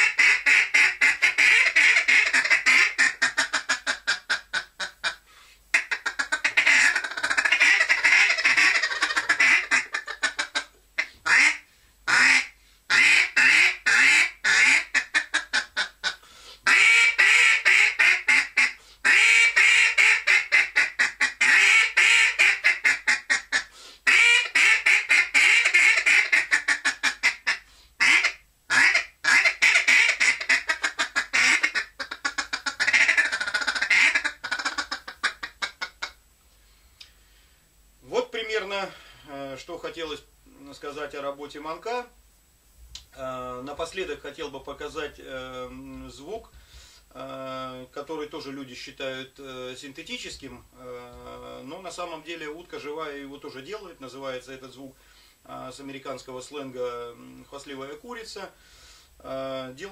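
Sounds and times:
duck call quacking: 0.0s - 36.2s.

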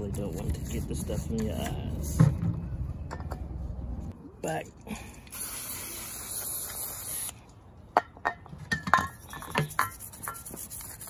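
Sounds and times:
aerosol spray hissing: 5.4s - 7.3s.

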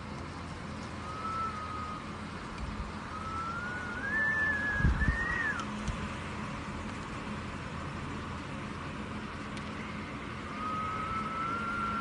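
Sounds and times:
wind whistling: 0.9s - 5.9s, 10.0s - 12.0s.

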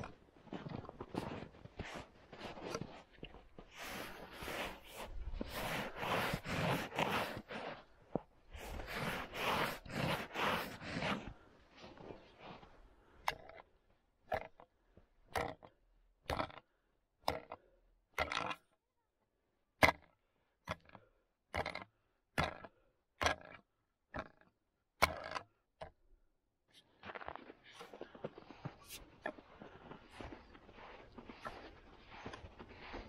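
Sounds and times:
boots crunching in snow: 0.0s - 12.7s, 26.9s - 33.0s.

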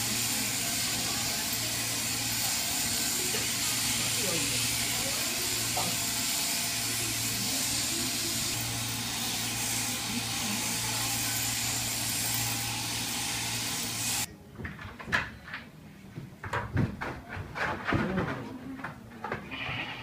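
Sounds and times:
sheep shearing handpiece buzzing: 0.0s - 14.3s
knocks: 16.4s - 19.4s.

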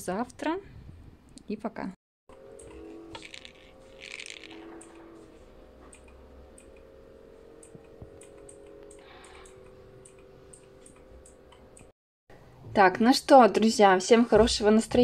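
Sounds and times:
low hum: 2.3s - 12.8s.

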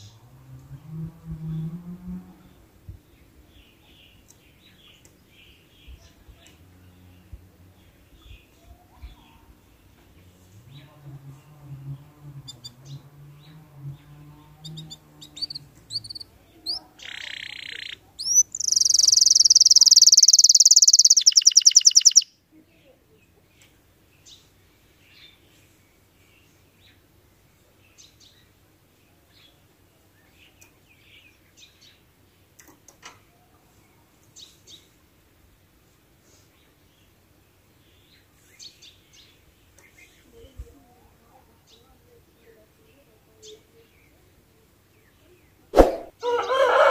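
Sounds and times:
canary singing and trilling: 10.6s - 22.4s.

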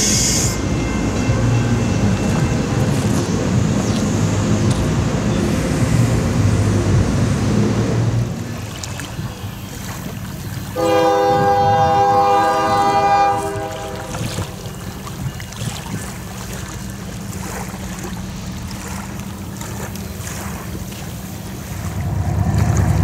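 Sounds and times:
locomotive air horn: 0.0s - 3.6s, 10.8s - 15.0s
diesel locomotive rumbling: 0.0s - 23.0s.

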